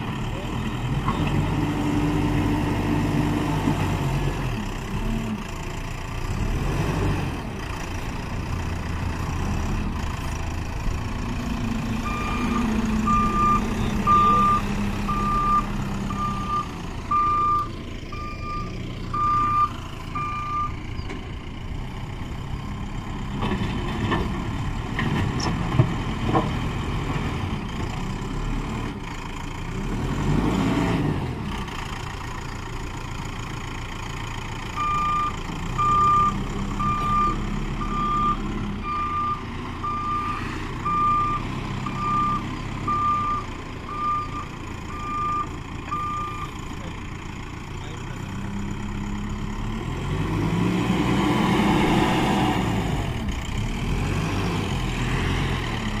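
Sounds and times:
diesel engine under load: 0:00.0 - 0:56.0
reversing alarm beeping: 0:12.0 - 0:20.8, 0:34.8 - 0:46.6.

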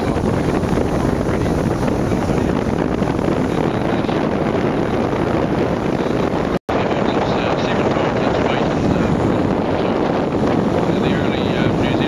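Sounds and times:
boat engine running: 0:00.0 - 0:12.0
wind buffeting microphone: 0:00.0 - 0:12.0.

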